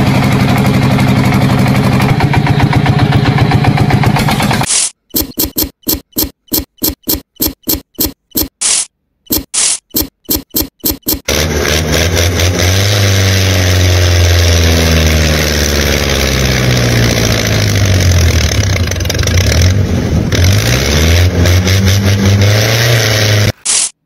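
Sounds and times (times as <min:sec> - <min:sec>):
tractor engine revving: 0:00.0 - 0:23.9
short clicks: 0:04.7 - 0:11.3.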